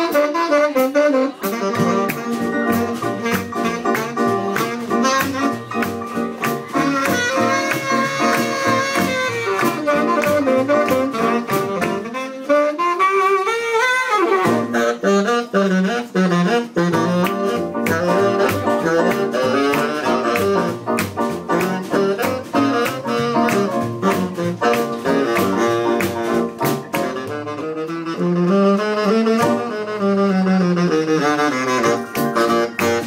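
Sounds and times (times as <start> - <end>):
jazz band playing: 0.0 - 33.0.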